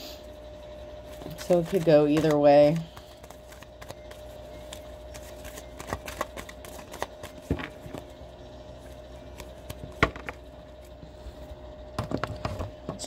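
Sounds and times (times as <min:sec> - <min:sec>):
faint hum: 0:00.0 - 0:13.0
cards being shuffled: 0:01.1 - 0:08.1, 0:08.8 - 0:10.4.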